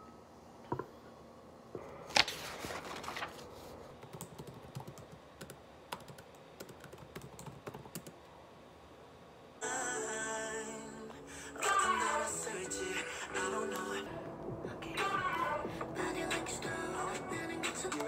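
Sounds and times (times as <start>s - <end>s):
typing on laptop keyboard: 4.0s - 8.2s.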